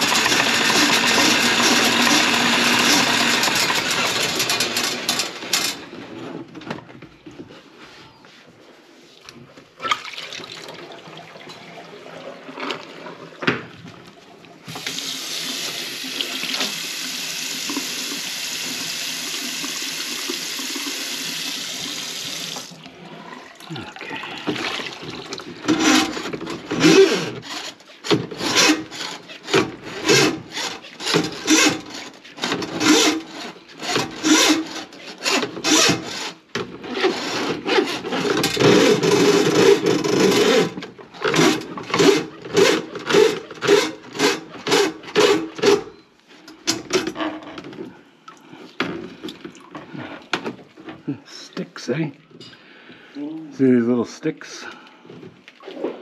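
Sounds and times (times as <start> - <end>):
kitchen tap running: 9.9 - 13.3, 14.6 - 26.4
scraping in sink drain: 20.8 - 35.1.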